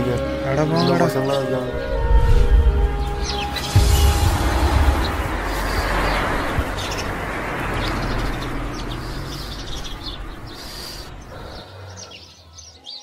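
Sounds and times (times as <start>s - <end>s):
broad background wash: 1.7s - 12.1s
small birds chirping: 3.0s - 13.0s.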